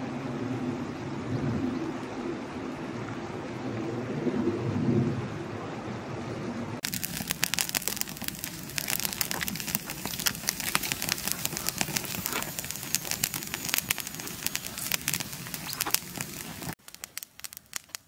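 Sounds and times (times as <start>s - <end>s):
wood fire crackling and popping: 6.8s - 18.0s.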